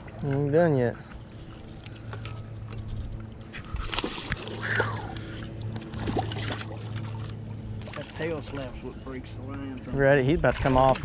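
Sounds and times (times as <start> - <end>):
boat motor humming: 0.0 - 11.0
water splashing: 1.6 - 11.0.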